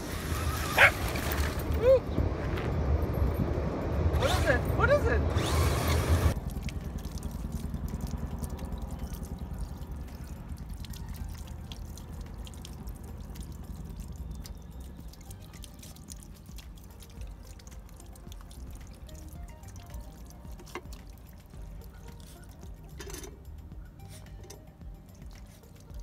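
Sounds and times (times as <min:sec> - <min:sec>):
water spurting and spattering: 0:00.0 - 0:02.4, 0:04.2 - 0:26.0
low steady rumble: 0:00.0 - 0:26.0
small splashes and drips: 0:06.3 - 0:26.0.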